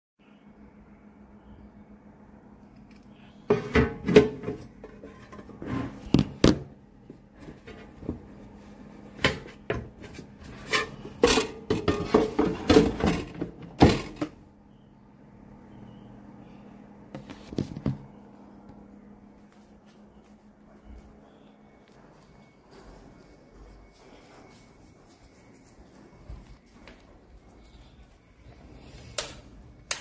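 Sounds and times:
faint steady hum: 0:00.2 - 0:30.0
hard parts knocking and clattering: 0:10.8 - 0:14.4.

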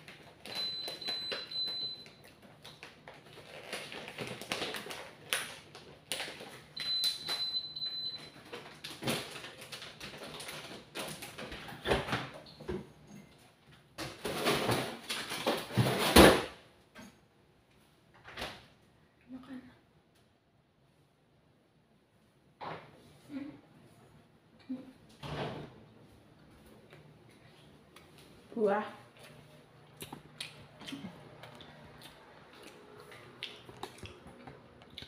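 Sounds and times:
food packaging rustling: 0:02.4 - 0:07.4, 0:08.3 - 0:11.8.

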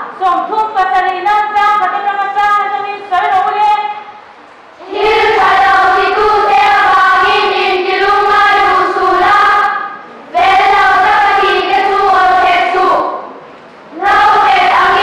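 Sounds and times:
children's choir singing a hymn: 0:04.8 - 0:15.0.

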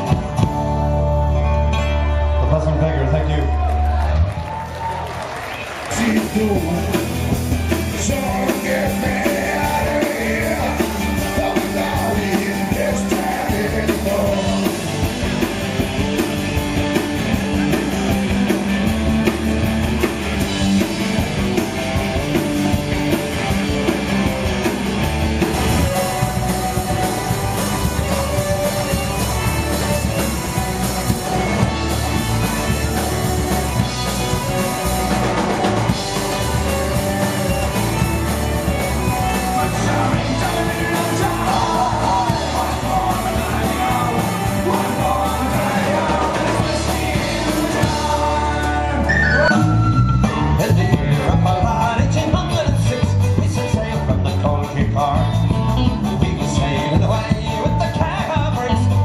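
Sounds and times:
drum kit: 0:00.0 - 0:02.1, 0:04.0 - 0:59.0
electric guitar: 0:00.0 - 0:59.0
man singing: 0:05.9 - 0:15.0, 0:39.0 - 0:59.0.

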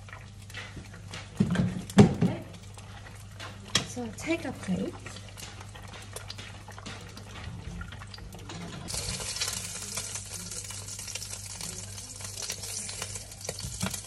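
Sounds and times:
egg sizzling in a pan: 0:08.4 - 0:14.0.

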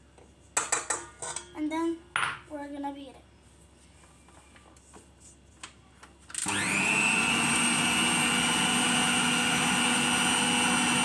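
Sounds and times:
stand mixer motor whining: 0:06.4 - 0:11.0.

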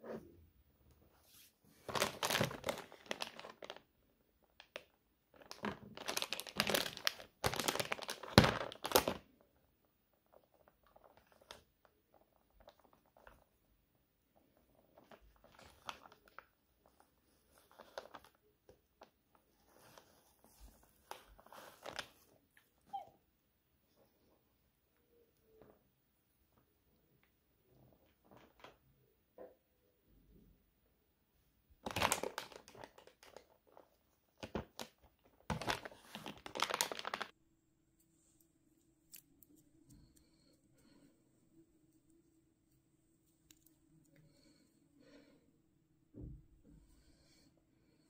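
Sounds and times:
crinkling and rustling wrapping: 0:01.2 - 0:09.5, 0:10.1 - 0:13.7, 0:14.3 - 0:23.0, 0:31.8 - 0:37.4.

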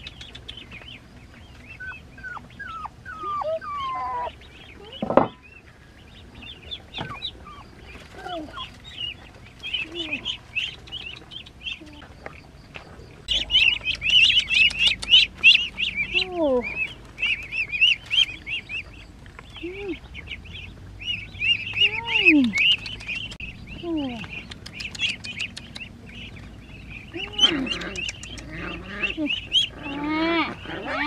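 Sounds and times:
ducklings peeping: 0:00.0 - 0:31.0
puppies whining: 0:01.8 - 0:05.4, 0:06.9 - 0:08.8, 0:27.1 - 0:31.0.

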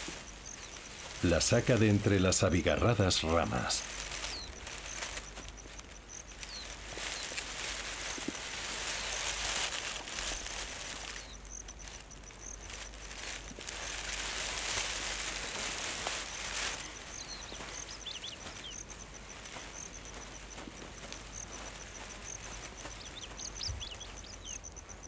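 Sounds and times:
insect trill: 0:00.0 - 0:25.0
rustling leaves and twigs: 0:00.0 - 0:25.0.

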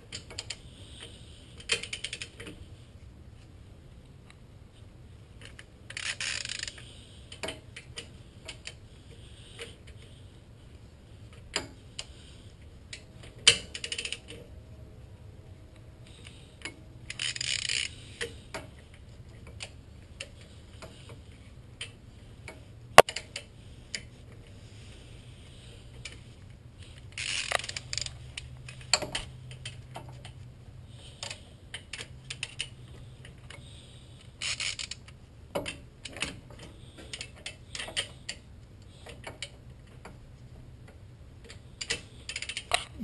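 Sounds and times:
torque wrench ratcheting: 0:05.9 - 0:06.8, 0:17.1 - 0:18.0, 0:27.2 - 0:28.1.

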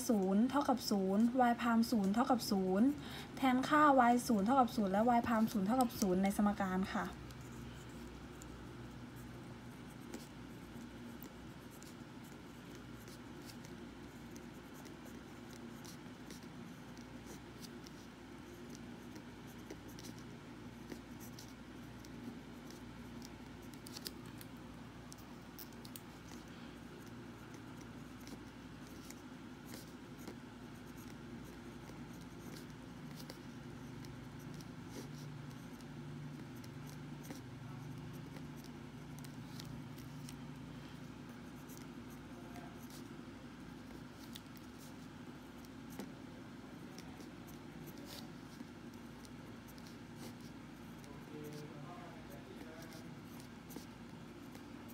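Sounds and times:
pen scratching on paper: 0:00.0 - 0:54.9.

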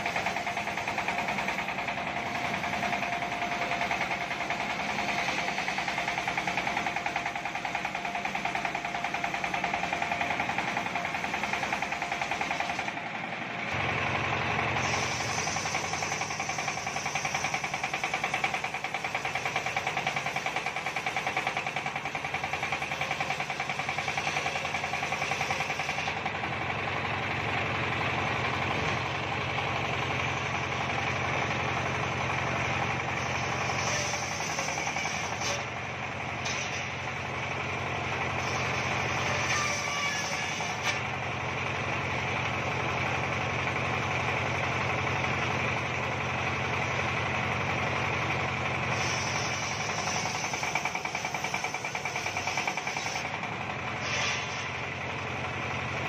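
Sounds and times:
high saw whine: 0:00.0 - 0:13.0, 0:14.3 - 0:26.2, 0:32.8 - 0:37.1, 0:38.3 - 0:41.1, 0:48.8 - 0:53.4
sawmill blade droning: 0:00.0 - 0:56.0.

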